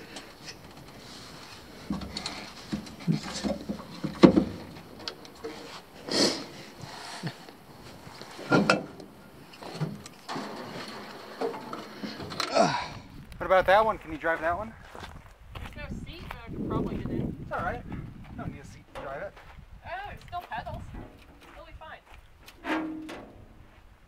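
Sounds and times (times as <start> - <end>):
knocks and scuffs on metal hull: 1.7 - 5.8.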